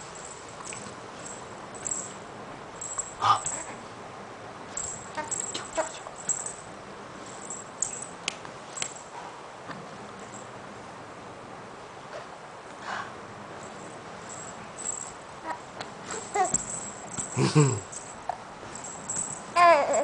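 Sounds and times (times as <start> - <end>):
baby cooing and squeaking: 15.4 - 16.6, 19.5 - 20.0.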